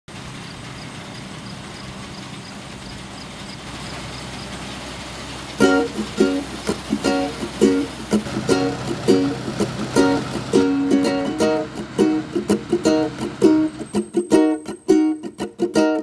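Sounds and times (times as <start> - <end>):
engine humming: 0.1 - 16.0
plucked-string background music: 5.6 - 16.0.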